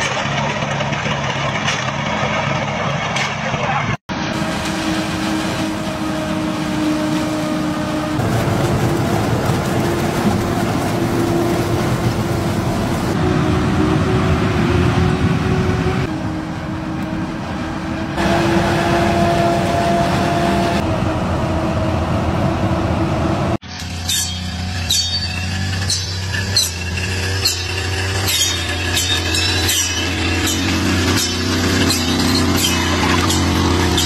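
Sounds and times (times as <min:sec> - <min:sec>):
harvester engine and machinery drone: 0:00.0 - 0:34.0.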